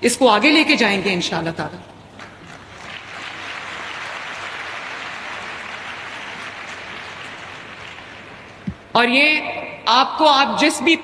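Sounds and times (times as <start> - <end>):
audience applauding: 2.1 - 8.9.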